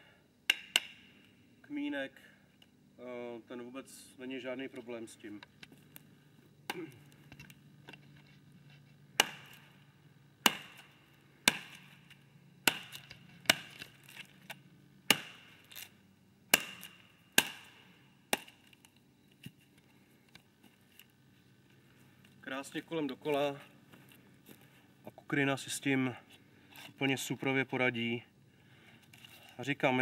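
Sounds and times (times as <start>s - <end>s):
machete chopping wood: 0.5s - 1.0s, 6.7s - 7.0s, 9.2s - 9.7s, 10.4s - 15.9s, 16.5s - 18.8s.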